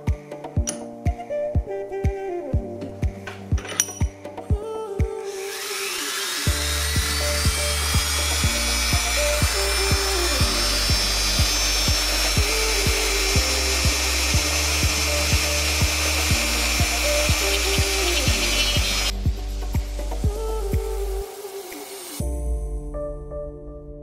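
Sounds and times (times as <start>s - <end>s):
background music with steady beat: 0.0s - 5.4s, 6.5s - 23.6s
rotary tool whining: 5.2s - 19.1s.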